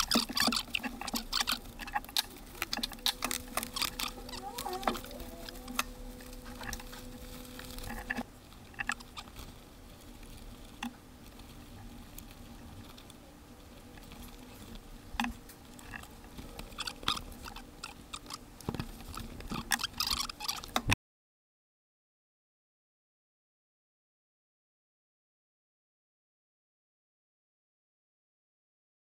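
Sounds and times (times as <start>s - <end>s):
faint steady hum: 0.0s - 21.0s.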